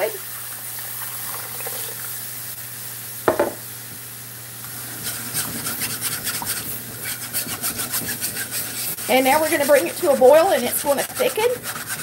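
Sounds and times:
whisk scraping a skillet: 4.8s - 12.0s.

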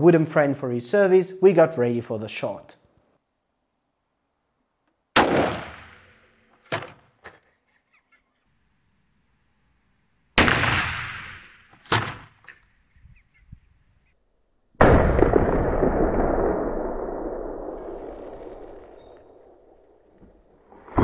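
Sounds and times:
rifle shots: 5.2s - 6.2s, 10.4s - 11.6s
long dull boom: 14.8s - 19.6s.

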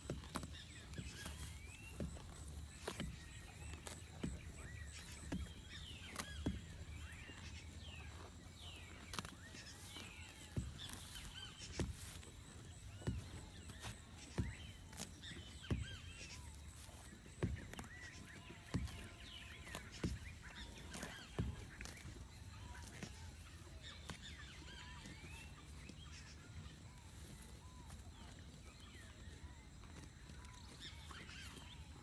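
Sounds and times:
ox tearing grass: 0.0s - 29.3s
small birds chirping: 0.0s - 32.0s.

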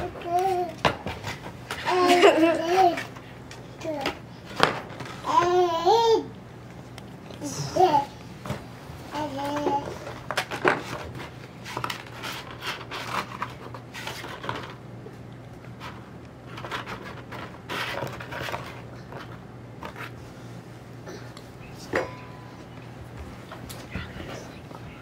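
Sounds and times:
low steady hum: 0.0s - 25.0s
paper and cardboard rustling: 9.1s - 14.8s, 15.6s - 20.2s.

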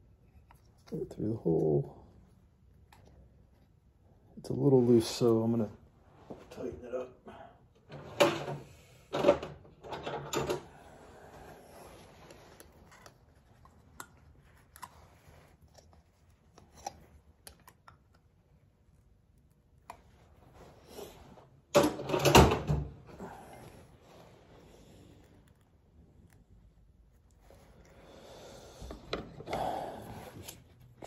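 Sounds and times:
clattering handling noise: 7.8s - 10.7s, 21.7s - 23.1s.

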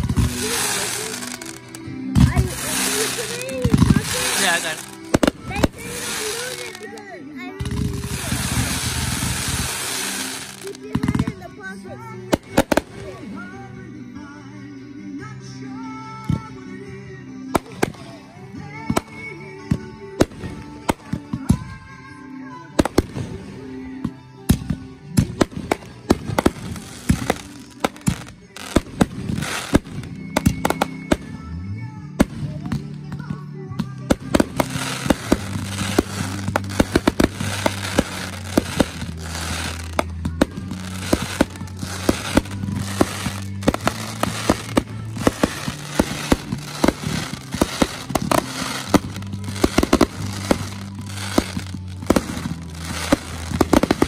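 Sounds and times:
dense crackling fireworks: 0.0s - 11.4s, 12.3s - 13.5s, 24.5s - 31.5s, 34.0s - 54.0s
fireworks bursting in bangs: 0.0s - 11.5s, 12.3s - 13.4s, 17.6s - 21.8s, 22.8s - 23.6s, 24.5s - 31.5s, 32.2s - 54.0s
music playing: 0.0s - 54.0s.

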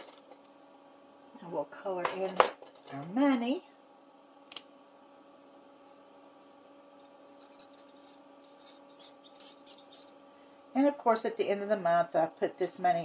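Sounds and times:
electrical hum: 0.0s - 13.0s
marker scratching on paper: 7.4s - 10.1s.

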